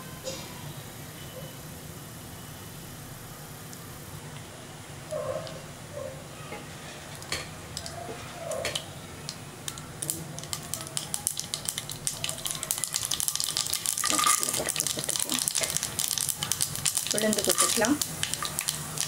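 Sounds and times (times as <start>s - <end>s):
seeds sizzling in hot oil: 8.7s - 19.0s
seeds popping: 9.3s - 19.0s.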